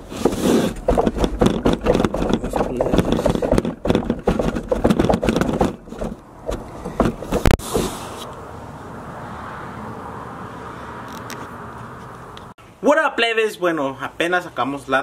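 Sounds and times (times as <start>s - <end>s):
speaker cabinets rattling on wheels: 0.8s - 7.5s
loud knock: 0.8s - 7.9s.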